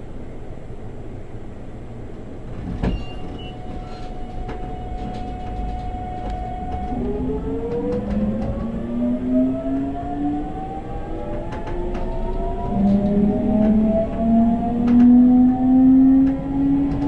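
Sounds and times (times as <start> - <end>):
electric train motors whining: 3.4 - 17.0.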